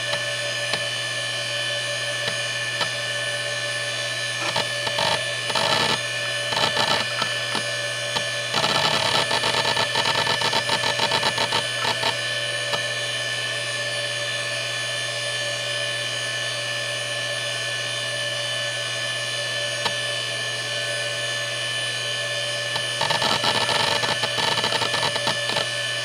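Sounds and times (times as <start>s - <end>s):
hard drive spinning whine: 0.0s - 26.0s
hard drive seek chatter: 4.4s - 12.9s, 22.7s - 25.7s.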